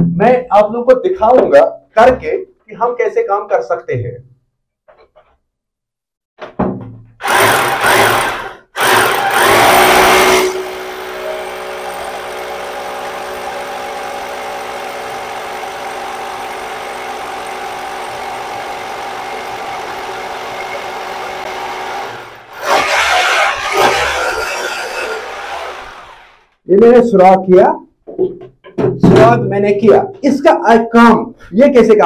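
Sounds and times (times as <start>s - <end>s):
hammer drill drilling into tile: 7.2s - 26.5s.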